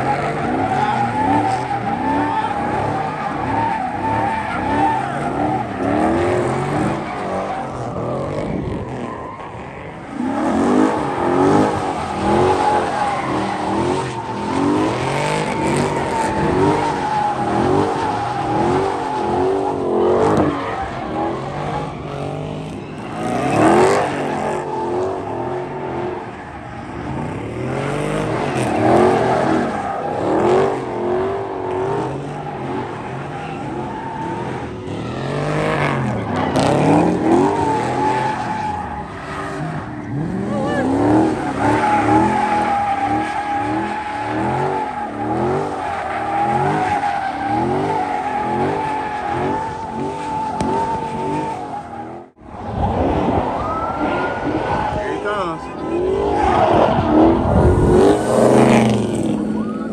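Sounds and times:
car engine revving: 0:00.0 - 0:59.9
tyres squealing: 0:09.0 - 0:52.2.

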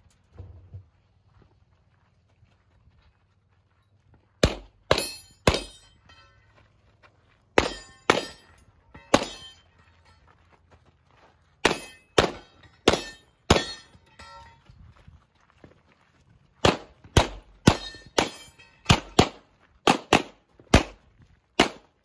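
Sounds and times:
bullets ringing on steel targets: 0:04.4 - 0:06.7, 0:07.6 - 0:10.5, 0:11.6 - 0:14.7, 0:16.7 - 0:21.0.

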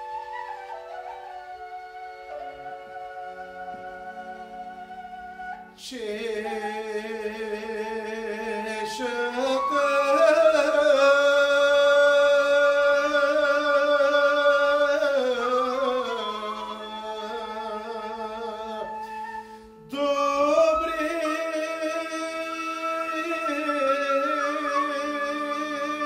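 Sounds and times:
instrumental backing: 0:00.0 - 0:26.0
man singing folk song: 0:05.8 - 0:19.0, 0:19.9 - 0:26.0.

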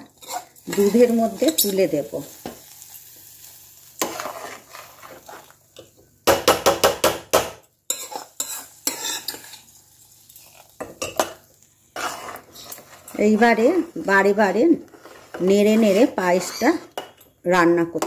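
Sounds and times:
metal spatula scraping rice: 0:00.0 - 0:01.9, 0:03.9 - 0:05.6, 0:07.9 - 0:11.2, 0:11.9 - 0:16.9.

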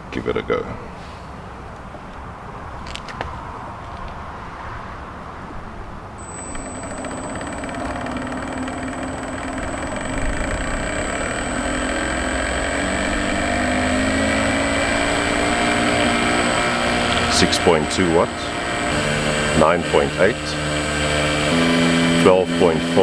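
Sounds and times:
small motor spinning propeller: 0:06.2 - 0:23.0
thin high whine: 0:06.2 - 0:23.0.

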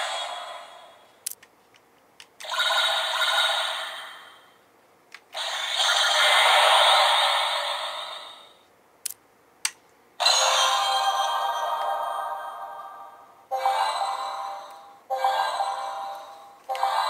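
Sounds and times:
toy electronic sound effects: 0:02.4 - 0:04.3, 0:05.4 - 0:08.5.

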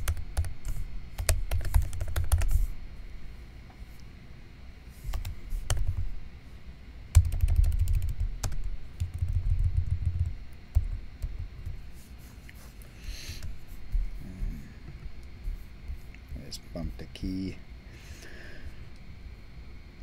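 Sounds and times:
keyboard typing: 0:00.0 - 0:02.6, 0:07.1 - 0:11.8.

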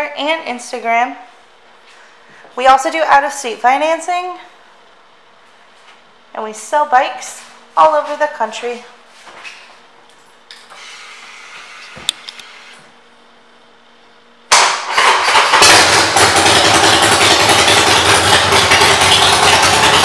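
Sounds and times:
motorcycle engine starting and running: 0:14.5 - 0:20.0.

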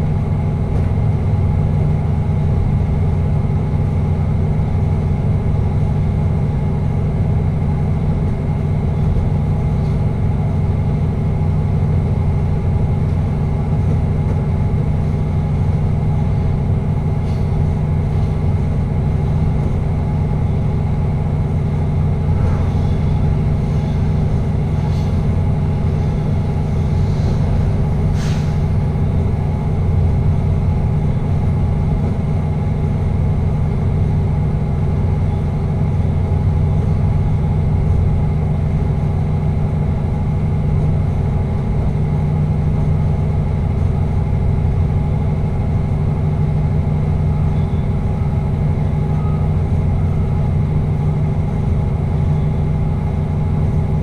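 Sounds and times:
train rumble: 0:00.0 - 0:54.0
steady hum: 0:07.7 - 0:33.9.

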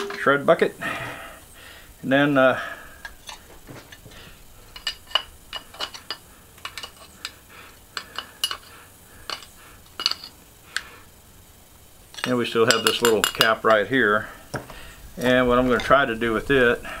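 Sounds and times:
screwdriver scraping metal: 0:04.7 - 0:07.4, 0:08.0 - 0:08.7.

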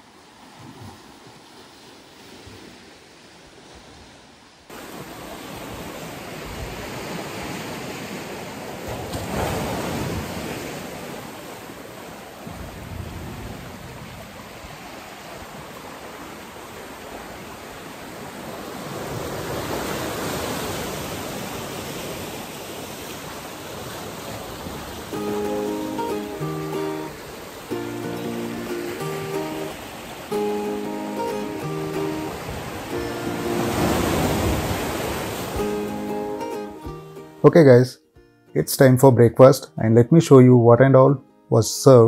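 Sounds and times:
surf breaking over rocks: 0:04.7 - 0:37.7.

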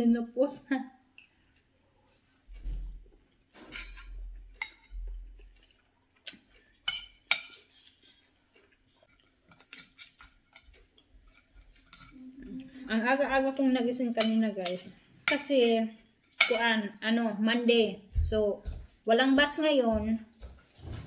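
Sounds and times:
chewing: 0:01.2 - 0:13.6.

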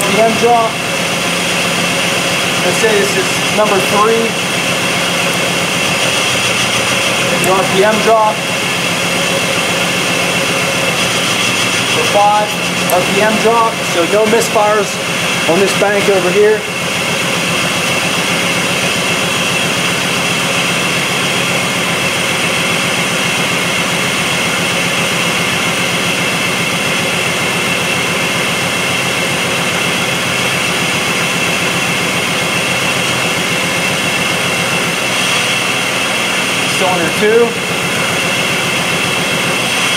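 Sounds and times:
car engine idling rough: 0:00.0 - 0:39.9.

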